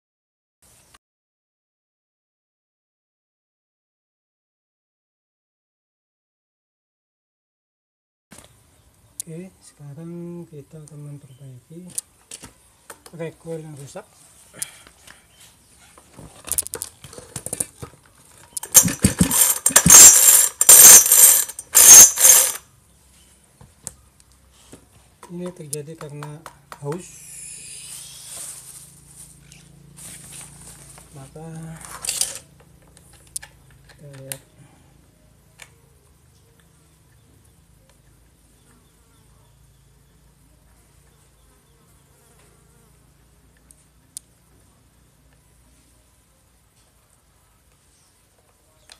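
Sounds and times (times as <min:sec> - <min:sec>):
small sharp clicks: 0:16.5 - 0:17.0
chainsaw recoil starter rasping: 0:18.4 - 0:22.6, 0:31.6 - 0:34.4.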